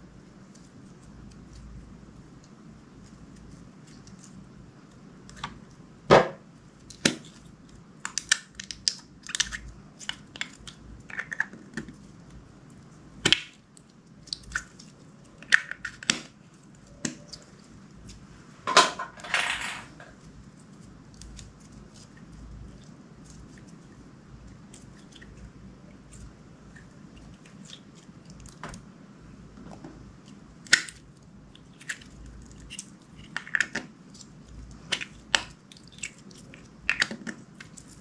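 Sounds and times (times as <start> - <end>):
slime squelching by hand: 6.8 - 18.4.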